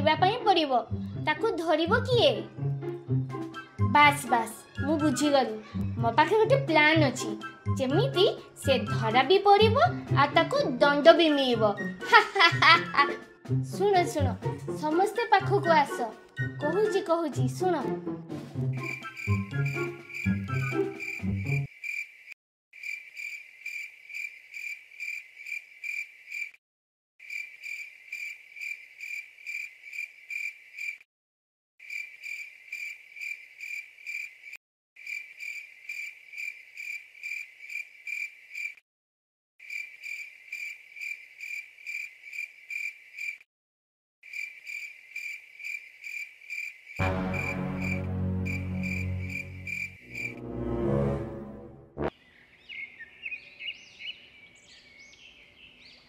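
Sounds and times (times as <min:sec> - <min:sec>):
music: 0:00.0 - 0:21.7, 0:47.0 - 0:52.1
crickets chirping: 0:18.8 - 0:26.6, 0:27.2 - 0:31.0, 0:31.8 - 0:38.8, 0:39.6 - 0:43.4, 0:44.3 - 0:50.4.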